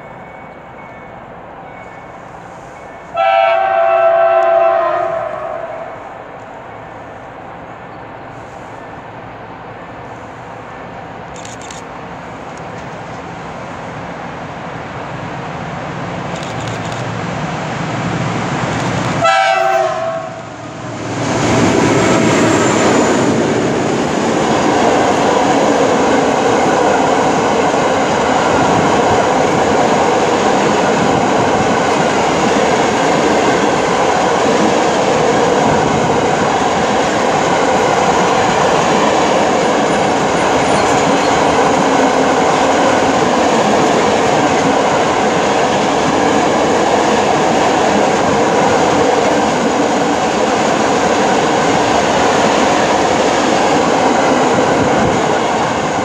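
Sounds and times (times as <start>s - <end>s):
diesel locomotive engine rumble: 0.0s - 56.0s
train horn blast: 3.1s - 6.0s, 19.2s - 20.8s.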